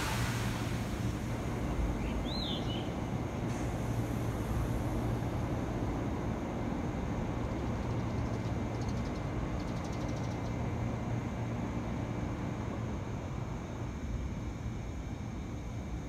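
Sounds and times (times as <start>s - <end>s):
electric train humming: 0.0s - 8.3s.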